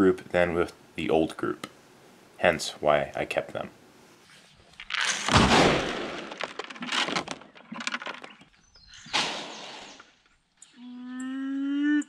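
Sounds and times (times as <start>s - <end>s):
pellets pouring into plastic bin: 4.9s - 8.2s.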